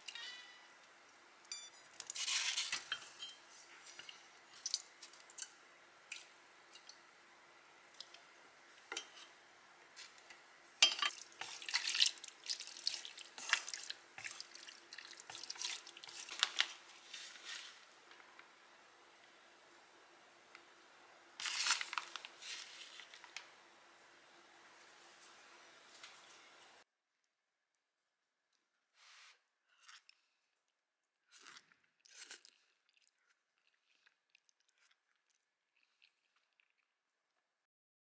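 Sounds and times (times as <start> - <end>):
utensils clicking on pan: 10.2 - 11.9.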